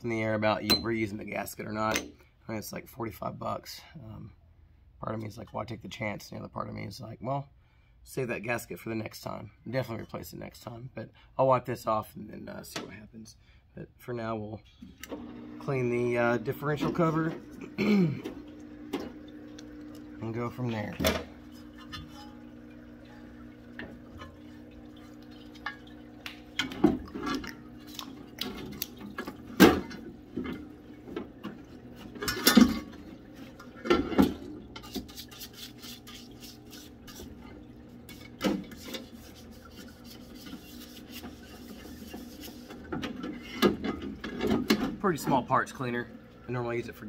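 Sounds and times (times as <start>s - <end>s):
fluid dripping and splashing: 21.4s - 32.1s, 32.9s - 45.1s
brush scrubbing: 34.8s - 43.6s.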